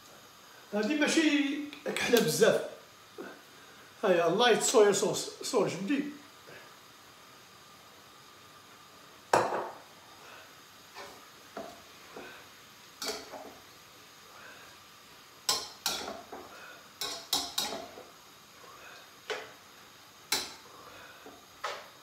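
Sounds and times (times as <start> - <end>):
utensil clinking against wok: 15.5 - 16.4, 17.0 - 18.0.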